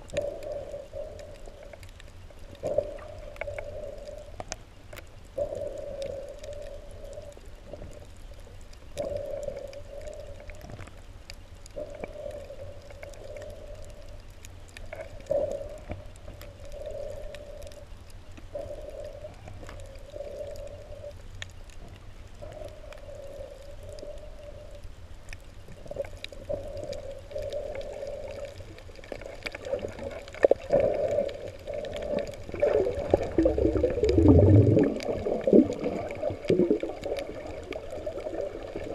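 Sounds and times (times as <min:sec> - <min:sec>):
low underwater rumble: 0:00.0 - 0:38.9
underwater hum: 0:00.0 - 0:38.9
rushing gurgling water: 0:29.0 - 0:38.9.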